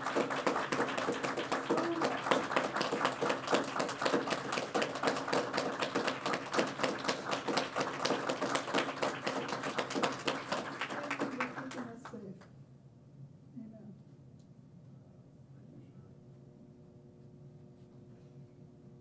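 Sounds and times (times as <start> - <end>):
crowd clapping: 0.0 - 12.5.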